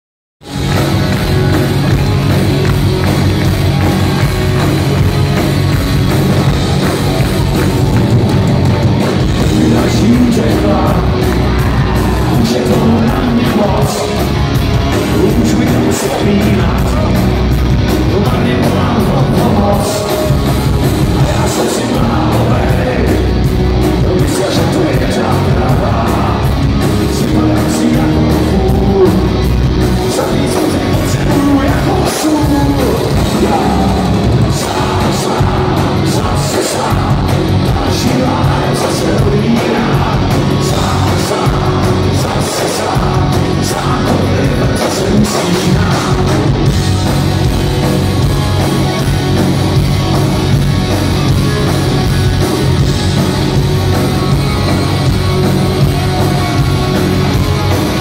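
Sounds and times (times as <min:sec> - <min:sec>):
live rock band playing: 0:00.4 - 0:58.0
man singing: 0:09.3 - 0:47.2.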